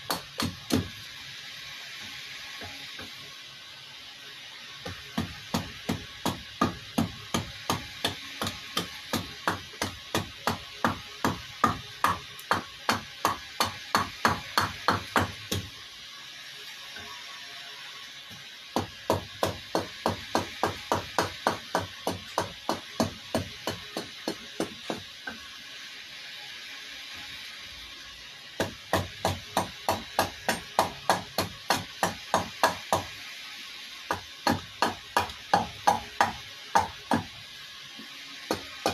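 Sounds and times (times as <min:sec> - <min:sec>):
carving tool chopping wood: 0:00.1 - 0:00.9, 0:04.8 - 0:15.7, 0:18.8 - 0:25.4, 0:28.6 - 0:33.1, 0:34.1 - 0:37.3, 0:38.5 - 0:38.9.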